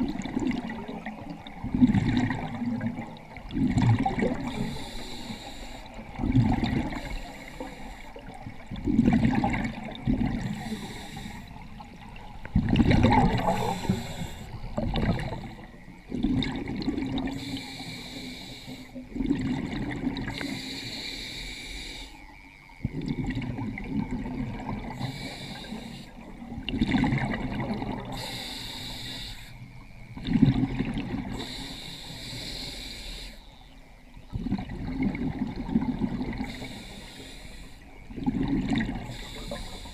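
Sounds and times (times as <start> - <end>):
bubbling exhaled air: 0.0 - 21.1, 34.3 - 39.9
regulator hissing inhale: 4.4 - 6.0, 7.0 - 8.4, 10.4 - 11.6, 13.4 - 15.8, 17.3 - 19.0, 20.3 - 22.2, 25.0 - 26.2, 28.1 - 29.7, 31.3 - 33.5, 36.4 - 37.9, 39.0 - 39.9.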